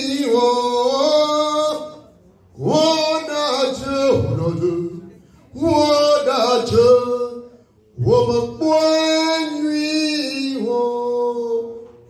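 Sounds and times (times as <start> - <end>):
singer breathing: 5.1 - 5.5.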